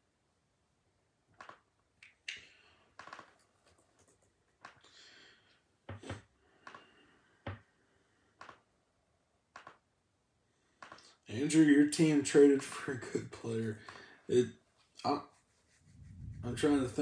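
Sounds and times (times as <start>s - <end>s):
faint clicks and taps: 1.3s - 7.7s, 8.4s - 8.7s, 9.5s - 9.9s, 10.8s - 11.2s.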